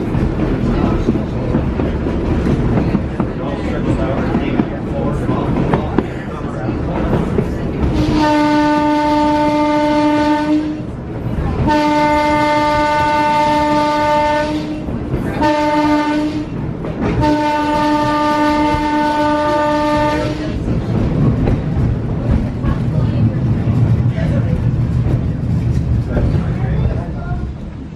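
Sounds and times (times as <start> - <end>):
railway car whistle blasts: 17.2 - 20.6.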